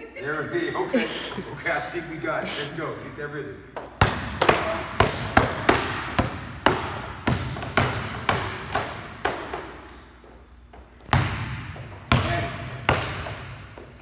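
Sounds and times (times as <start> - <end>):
basketball bouncing on court floor: 3.8 - 10.0, 10.8 - 14.0.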